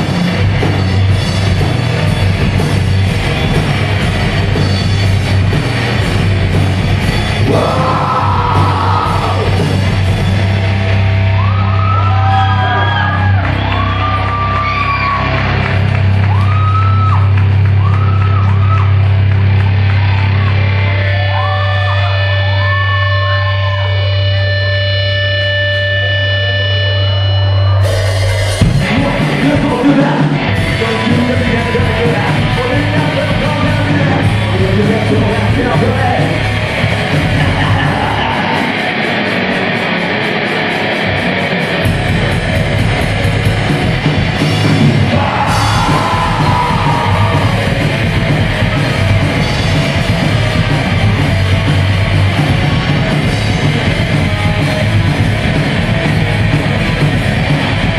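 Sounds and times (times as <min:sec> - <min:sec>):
live rock band playing: 0:00.0 - 0:57.9
person singing: 0:07.4 - 0:09.6.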